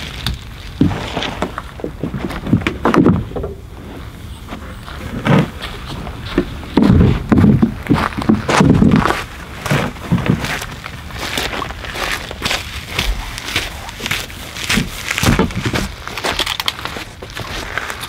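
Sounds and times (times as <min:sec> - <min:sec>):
thuds and knocks in canoe: 0:06.4 - 0:09.1, 0:14.7 - 0:15.9.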